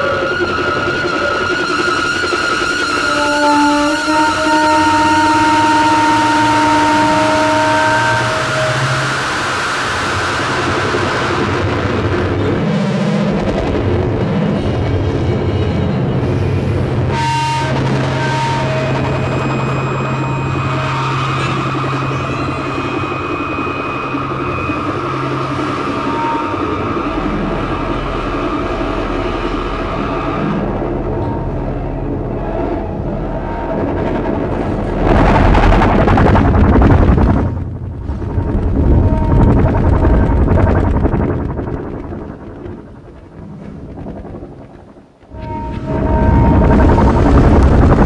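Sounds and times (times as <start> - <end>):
low drone: 0.0 - 48.0
low rumbling ensemble texture: 18.9 - 48.0.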